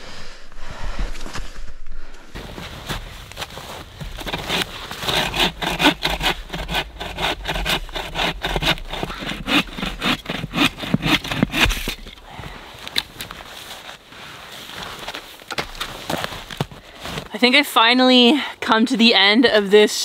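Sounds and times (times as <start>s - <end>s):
bow saw cutting log: 4.0s - 12.2s.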